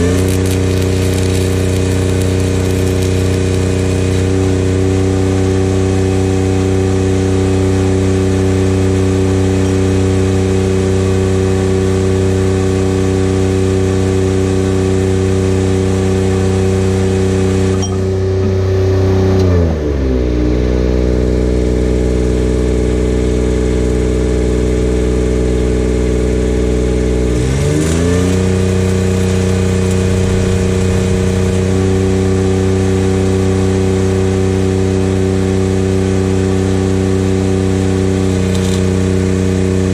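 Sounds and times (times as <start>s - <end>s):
welding arc crackling: 0.0s - 5.2s, 27.0s - 33.7s
welding generator engine running: 0.0s - 19.4s, 21.4s - 39.9s.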